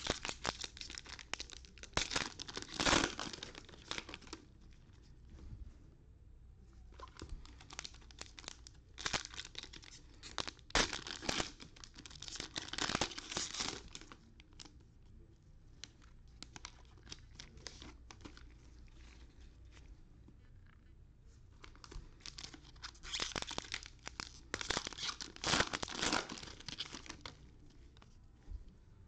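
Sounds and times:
foil wrappers tearing and crinkling: 0:00.0 - 0:04.4, 0:07.6 - 0:14.1, 0:22.2 - 0:27.3.

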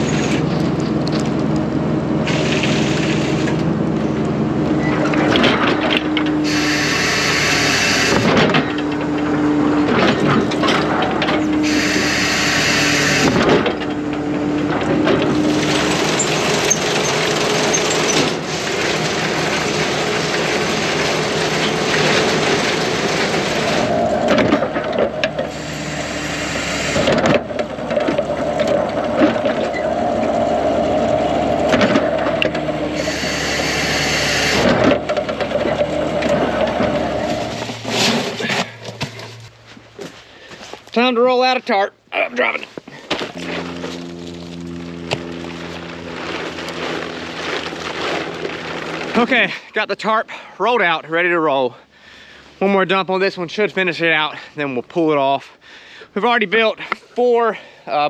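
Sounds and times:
engine and hydraulics droning: 0:00.0 - 0:41.0, 0:42.0 - 0:49.8
short bursts of hiss: 0:06.5 - 0:08.2, 0:11.6 - 0:13.2.

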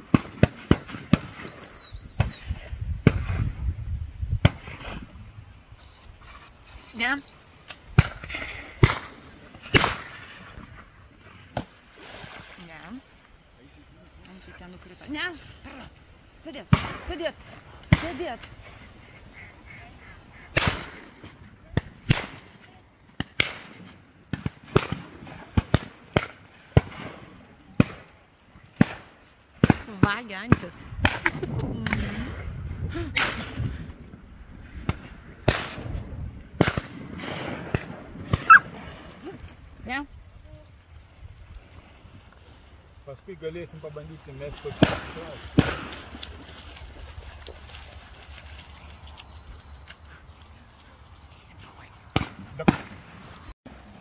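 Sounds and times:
shotguns firing: 0:00.0 - 0:01.5, 0:07.9 - 0:10.9, 0:16.7 - 0:17.1, 0:20.6 - 0:22.6, 0:23.2 - 0:28.2, 0:36.6 - 0:38.6, 0:44.7 - 0:46.1.

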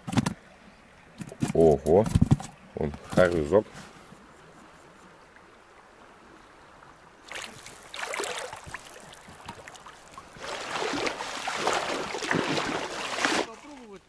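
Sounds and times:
water splashing in a river: 0:04.2 - 0:14.0.

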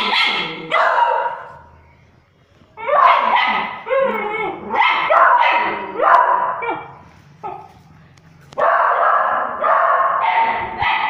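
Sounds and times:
dog barking: 0:00.0 - 0:01.6, 0:02.9 - 0:03.8, 0:04.6 - 0:07.7, 0:08.6 - 0:11.0.

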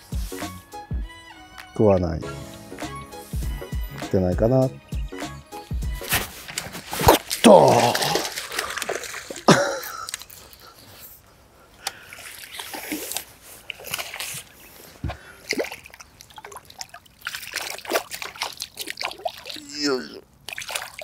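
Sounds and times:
water splashing and sloshing: 0:05.9 - 0:11.2, 0:11.8 - 0:21.0.

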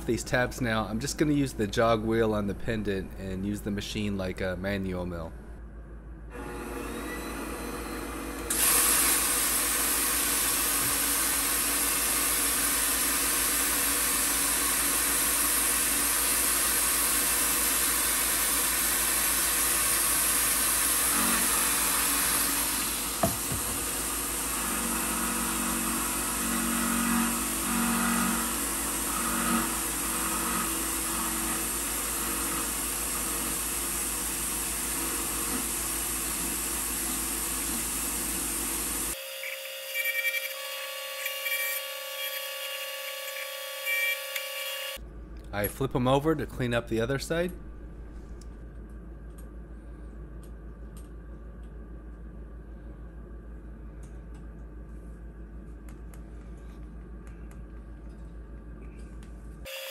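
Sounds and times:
mill spindle cutting metal: 0:06.4 - 0:45.0.

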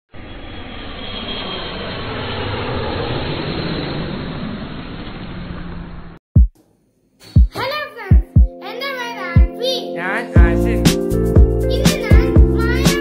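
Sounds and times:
rushing rumbling sound effect: 0:00.1 - 0:06.2.

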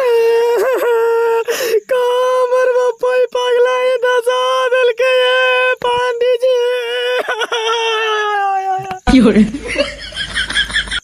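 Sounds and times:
person wailing: 0:06.6 - 0:09.0.

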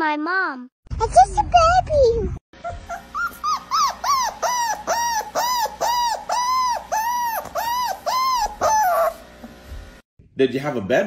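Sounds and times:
high-pitched squeaks: 0:02.6 - 0:09.2.

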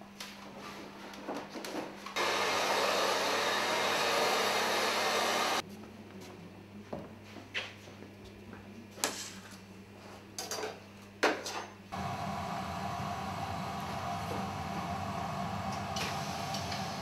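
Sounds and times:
hair dryer blowing: 0:02.2 - 0:05.6, 0:12.0 - 0:17.0.

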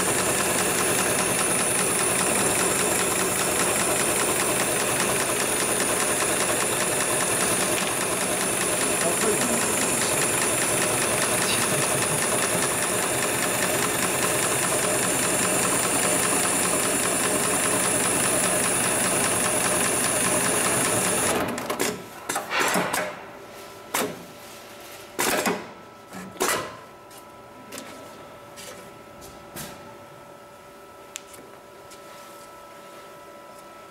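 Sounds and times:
sewing machine running fast: 0:00.0 - 0:22.0.

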